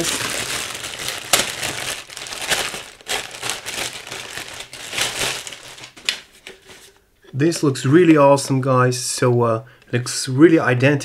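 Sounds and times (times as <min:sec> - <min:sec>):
packaging rustling and crinkling: 0:00.0 - 0:07.0.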